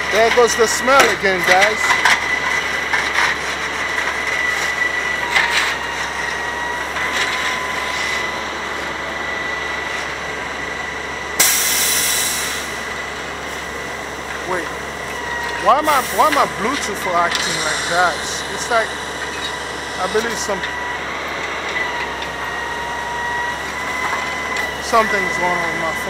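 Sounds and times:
crane mechanical whir: 0.0s - 26.0s
loud hydraulic hiss: 11.4s - 12.7s, 17.4s - 18.5s.

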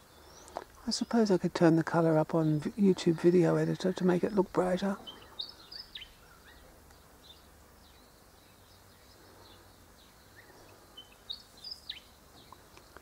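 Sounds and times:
bird chirps: 2.4s - 13.0s
bird whistled song: 5.0s - 12.6s.

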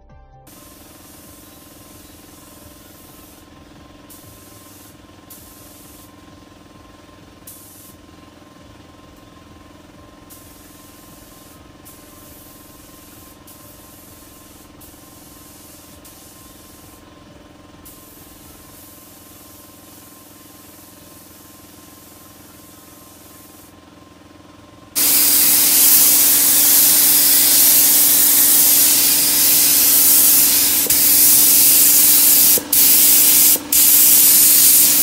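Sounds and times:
spray gun hissing: 0.5s - 3.5s, 4.1s - 6.2s, 7.4s - 8.0s, 10.3s - 17.0s, 17.8s - 23.8s, 25.0s - 35.0s
steady hum: 25.0s - 35.0s.

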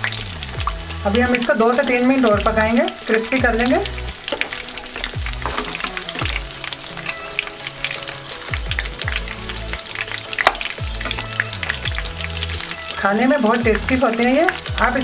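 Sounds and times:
chicken deep-frying in oil: 0.0s - 15.0s
slotted spoon stirring: 1.2s - 6.9s.

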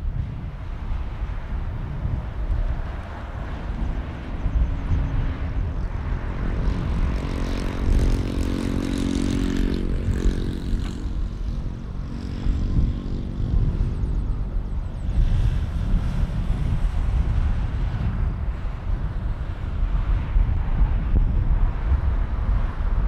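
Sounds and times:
jet airliner engines droning: 0.0s - 23.0s.

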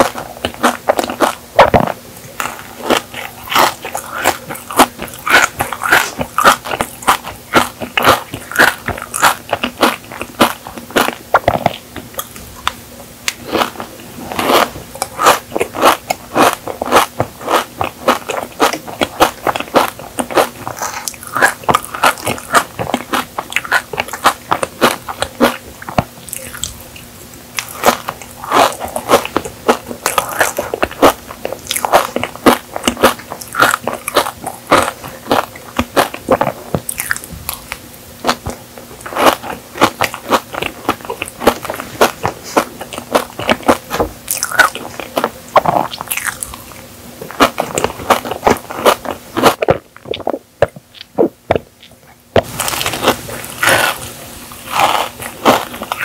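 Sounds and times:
chewing and biting cake: 0.0s - 56.0s
crisp pastry shreds crunching: 0.0s - 56.0s.

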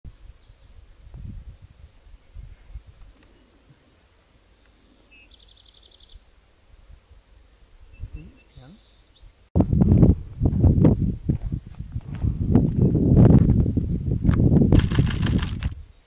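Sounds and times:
small birds chirping: 2.0s - 6.4s, 7.1s - 9.5s
low rumbling bumps: 9.6s - 15.8s.

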